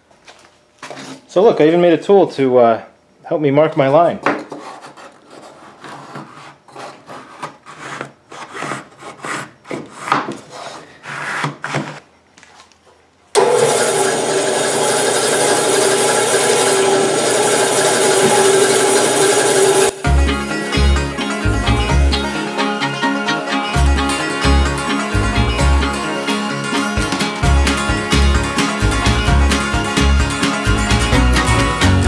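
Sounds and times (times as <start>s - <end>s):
tool scraping along bark: 13.4s - 20.0s
bandsaw humming: 13.4s - 32.0s.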